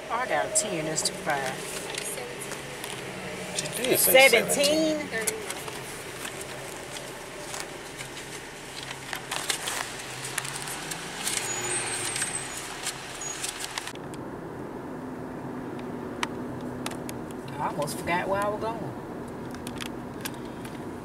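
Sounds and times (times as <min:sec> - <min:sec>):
car engine and road hum: 0:00.0 - 0:21.0.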